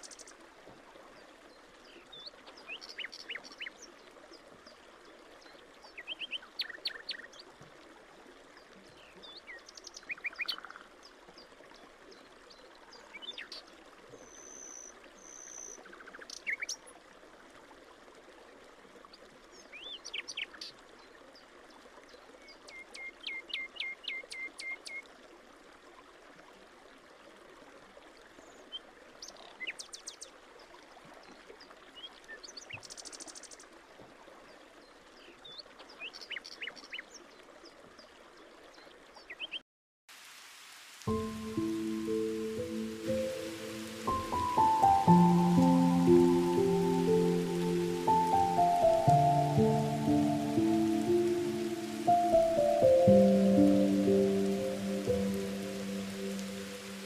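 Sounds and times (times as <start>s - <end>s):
water trickling over soil: 40.1s - 57.0s.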